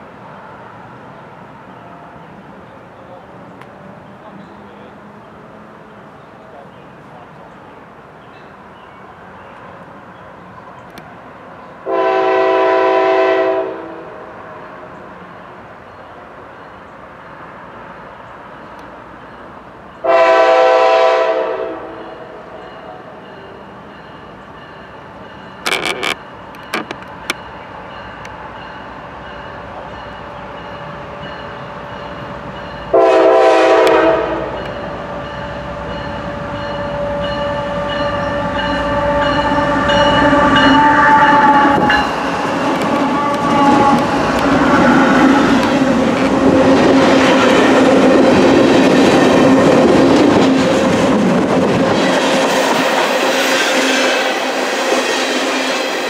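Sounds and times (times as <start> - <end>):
passing train engines: 0.0 - 56.0
locomotive horn blasts: 11.8 - 14.3, 20.0 - 22.5, 32.9 - 34.8, 36.5 - 42.0, 42.9 - 45.7.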